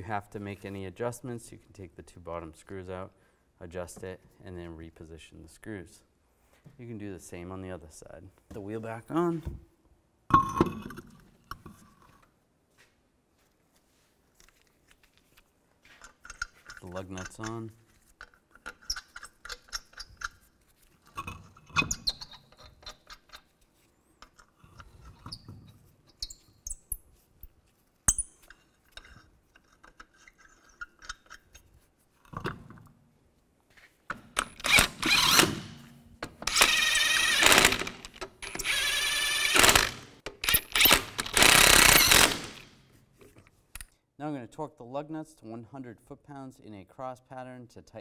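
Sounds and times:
impact wrench bursts: 34.3s - 35.8s, 36.4s - 42.8s.

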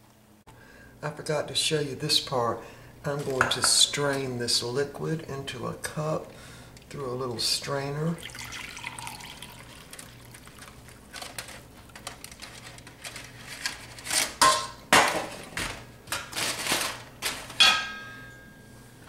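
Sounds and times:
drippings pouring through strainer: 8.2s - 11.3s
ringing metal clink: 17.6s - 18.7s.

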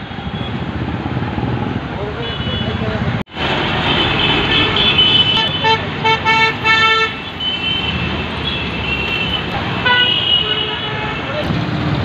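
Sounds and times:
road traffic passing: 0.0s - 12.0s
vehicle horn honking: 3.8s - 11.3s.

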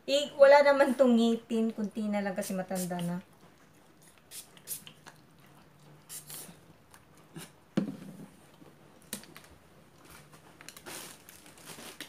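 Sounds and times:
rustling and handling sounds: 5.5s - 12.0s.

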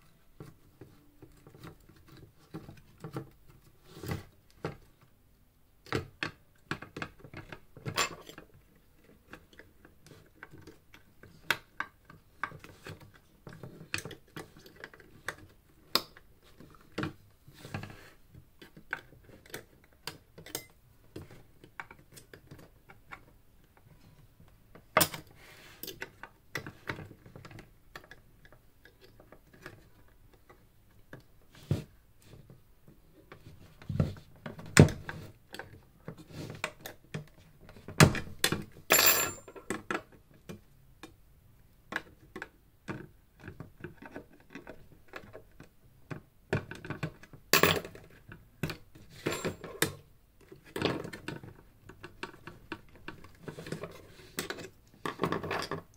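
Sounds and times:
tools and metal parts clinking: 7.8s - 8.4s, 38.9s - 39.8s, 47.6s - 48.2s, 49.1s - 50.0s.

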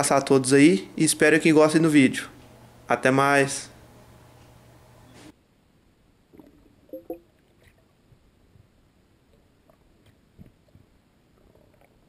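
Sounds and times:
faint underwater ambience: 5.6s - 12.0s.

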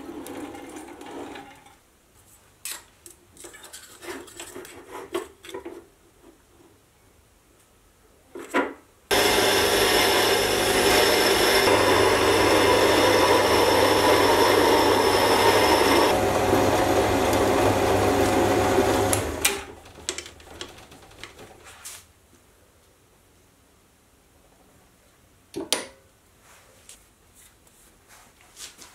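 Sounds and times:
lathe machine hum: 9.1s - 19.9s.

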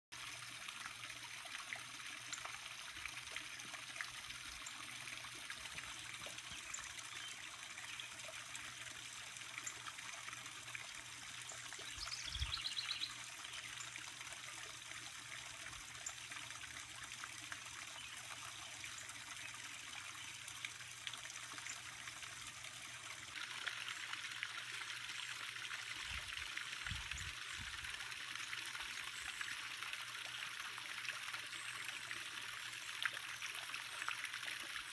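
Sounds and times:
high bird chirps: 12.0s - 13.1s.

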